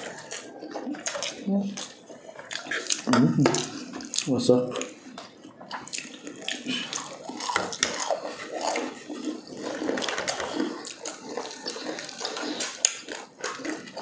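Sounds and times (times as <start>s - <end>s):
wet chewing: 0.0s - 14.0s
crispy breading crackling: 5.8s - 14.0s.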